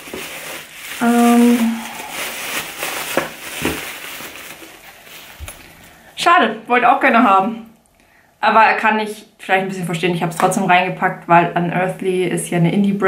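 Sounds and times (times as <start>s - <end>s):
packaging rustling and crinkling: 0.0s - 6.0s
woman humming: 1.0s - 2.2s.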